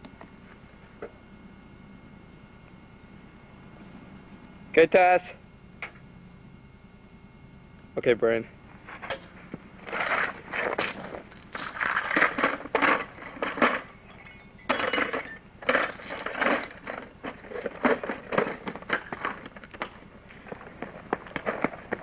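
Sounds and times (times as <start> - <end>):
tools clinking in a toolbox: 10.8 - 19.8.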